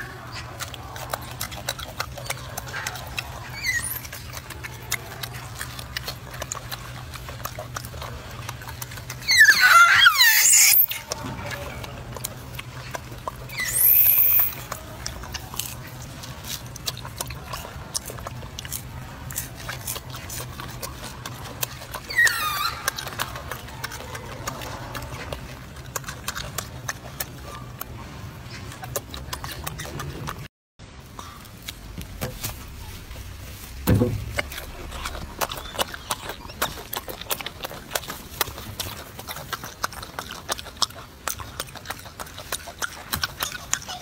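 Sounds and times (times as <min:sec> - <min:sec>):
monkey chewing and smacking: 0:00.0 - 0:44.0
monkey squeal: 0:03.4 - 0:04.2, 0:09.2 - 0:11.1, 0:13.5 - 0:14.7, 0:22.0 - 0:23.3.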